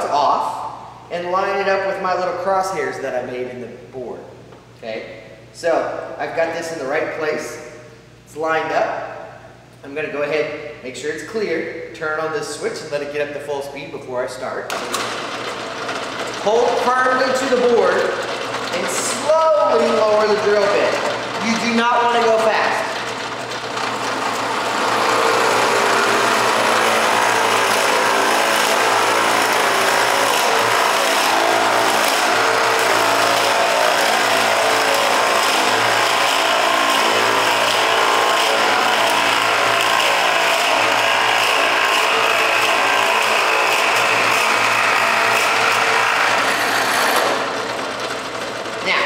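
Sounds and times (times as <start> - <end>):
drill press whirring: 14.7 - 49.0
drill bit rasping wood: 15.9 - 48.8.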